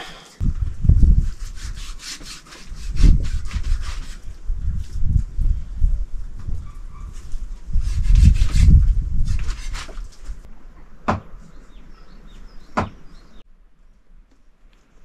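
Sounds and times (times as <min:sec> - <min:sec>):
sharp knocks: 0:11.0 - 0:11.4, 0:12.8 - 0:13.0
small birds chirping: 0:11.2 - 0:13.5.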